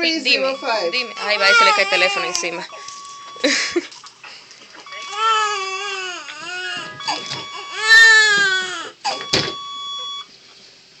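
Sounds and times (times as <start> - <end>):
thin steady electronic tone: 0.0 - 8.3, 9.1 - 10.3
newborn baby crying: 0.9 - 2.9, 4.9 - 9.3.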